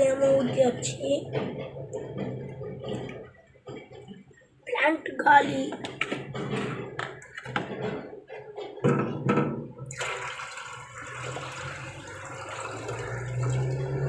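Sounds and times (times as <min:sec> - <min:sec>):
water pouring into a plastic tub: 0:09.9 - 0:14.0.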